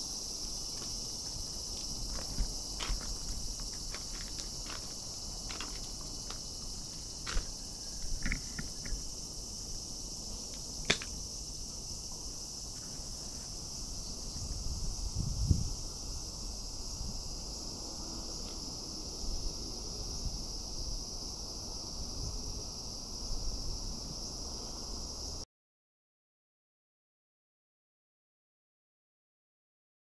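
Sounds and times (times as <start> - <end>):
high-pitched insect chorus: 0.0 - 25.4.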